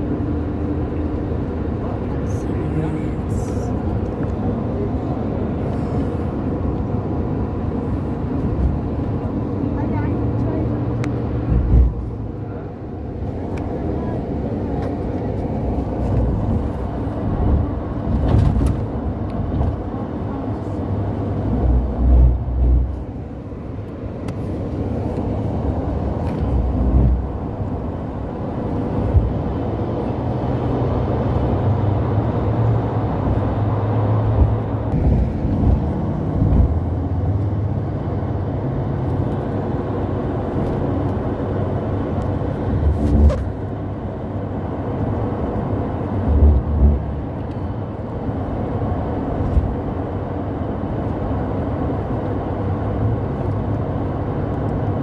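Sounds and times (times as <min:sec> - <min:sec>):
car road and engine rumble: 0:00.0 - 0:55.0
low thumps: 0:11.4 - 0:12.1.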